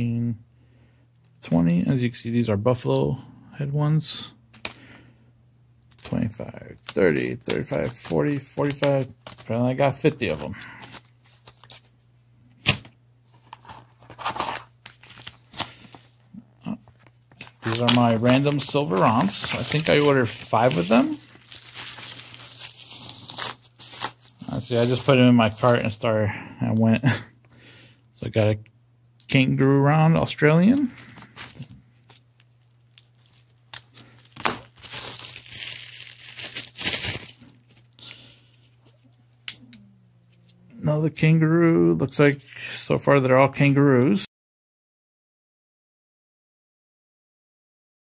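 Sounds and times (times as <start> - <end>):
low steady hum: 0.0 - 44.3
packaging rustling and crinkling: 5.9 - 11.9, 13.3 - 16.2, 16.9 - 25.9, 30.7 - 39.1.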